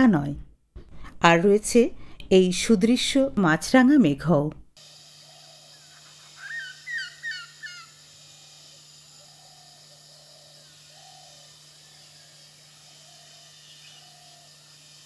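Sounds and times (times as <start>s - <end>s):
steady low hum: 4.8s - 15.0s
bird calling clear notes: 5.2s - 14.7s
lower bird calls: 5.2s - 15.0s.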